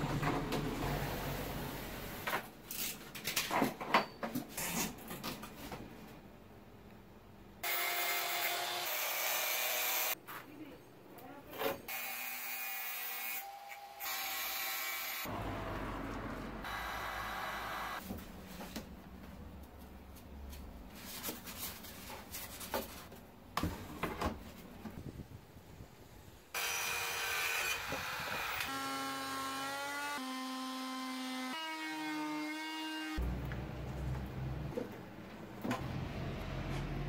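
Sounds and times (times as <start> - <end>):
circular saw cutting wood: 7.6 - 10.2, 11.9 - 18.0, 26.6 - 33.2.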